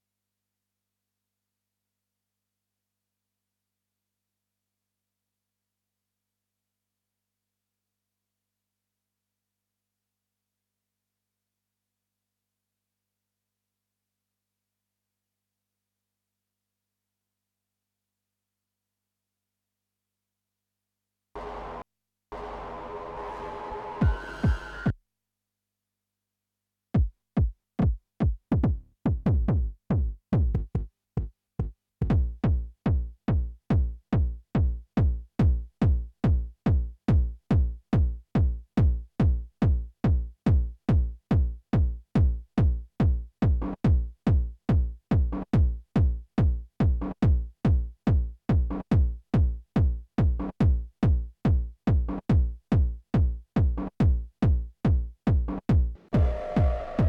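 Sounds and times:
techno kick drum beat: 27.0s - 56.8s.

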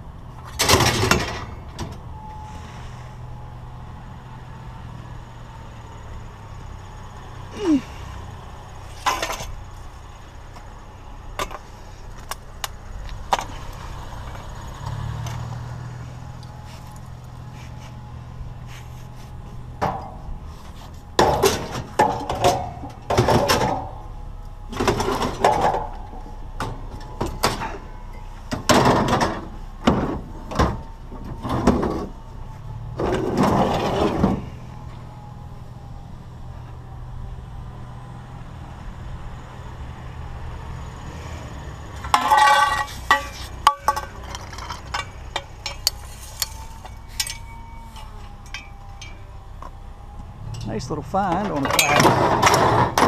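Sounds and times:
low engine hum: 0.0s - 53.0s
scrap metal clanking and scraping: 0.4s - 3.1s, 8.8s - 9.9s, 15.2s - 32.2s, 32.9s - 35.0s, 42.0s - 49.4s, 50.4s - 53.0s.

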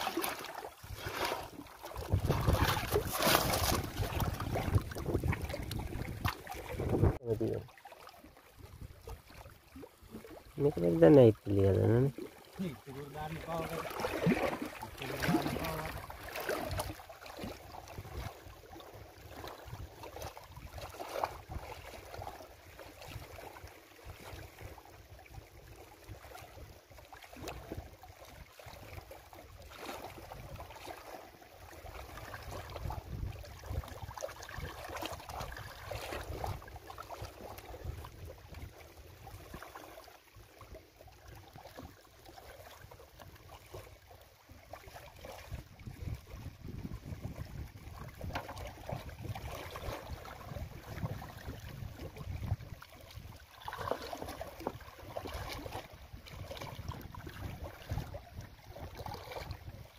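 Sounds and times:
small waves lapping on rocks: 0.0s - 59.9s
wind rumbling on microphone: 0.8s - 7.7s, 13.9s - 22.2s, 32.1s - 39.7s, 44.9s - 59.9s.

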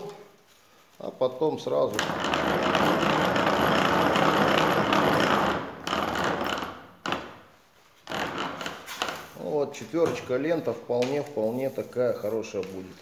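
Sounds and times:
hand-cranked shaver rattling: 1.9s - 7.3s, 8.1s - 9.3s.

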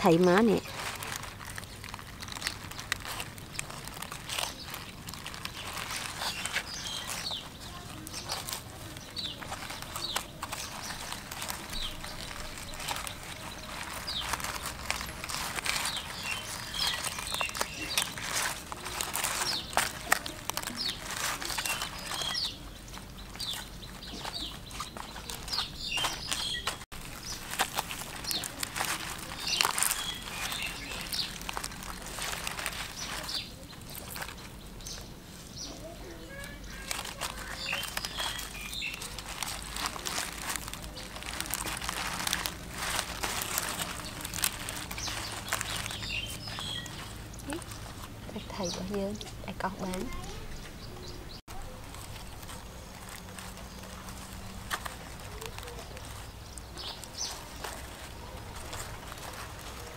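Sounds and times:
wet clicks and scrapes of stick: 0.0s - 35.1s
birds chirping: 0.0s - 59.9s.

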